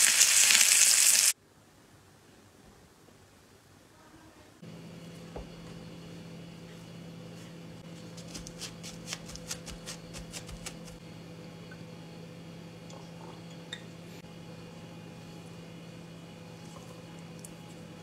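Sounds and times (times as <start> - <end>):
steady low hum: 3.6 - 18.0
paper towel crinkling on steak: 7.9 - 11.0.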